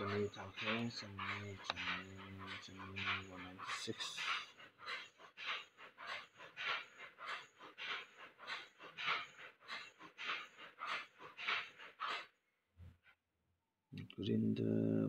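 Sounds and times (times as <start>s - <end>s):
rapid panting: 0.0s - 12.3s.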